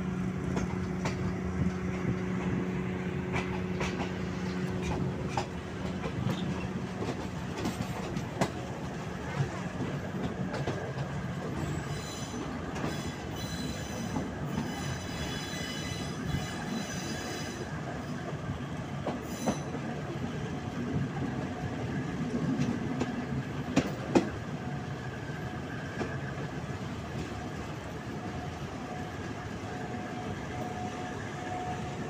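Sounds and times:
train rolling noise: 0.0s - 32.0s
wheels clacking over rail joints: 3.3s - 18.3s
train wheels squealing: 11.4s - 18.0s, 19.1s - 20.0s.

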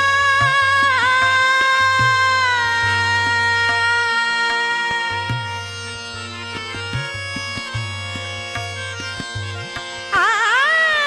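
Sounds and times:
tabla playing a steady rhythm: 0.0s - 11.0s.

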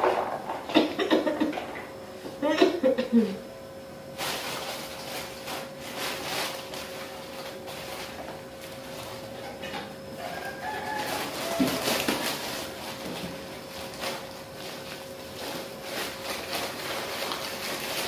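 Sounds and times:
faint hum: 0.0s - 18.0s
plastic bag rustling: 4.1s - 18.0s
rooster crowing: 10.1s - 12.8s.

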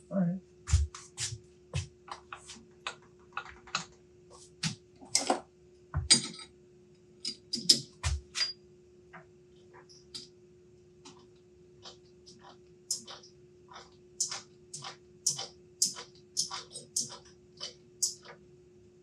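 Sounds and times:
faint steady hum: 0.0s - 19.0s
steel parts and tools clinking: 7.2s - 8.6s.

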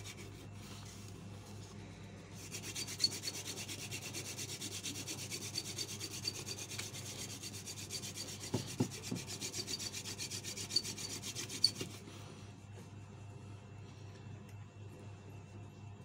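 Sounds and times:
wooden spindle rubbing on board: 2.4s - 12.0s.

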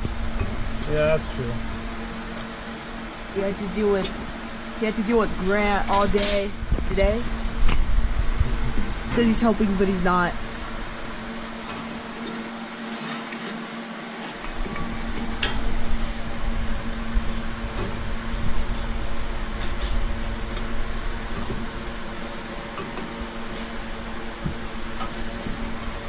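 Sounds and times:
mechanical hum: 0.0s - 26.0s
low rumble: 6.5s - 11.2s.

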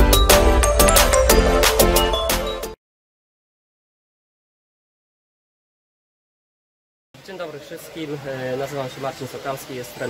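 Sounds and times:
background music with a beat: 0.0s - 2.8s.

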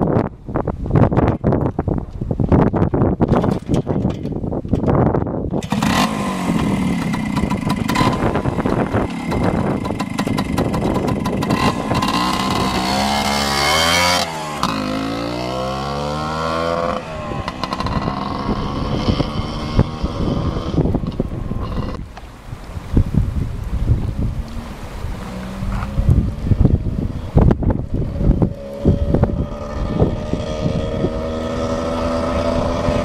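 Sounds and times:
two-stroke motorcycle engine: 3.4s - 22.0s.

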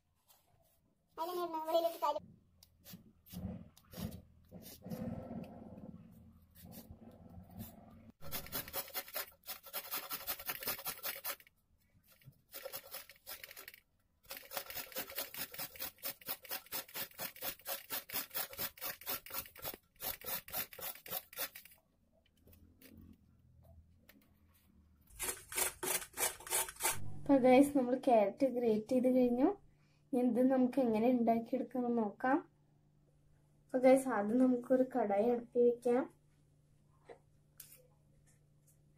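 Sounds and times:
carrot grating on metal grater: 8.2s - 11.5s, 14.3s - 21.8s, 25.1s - 27.1s.

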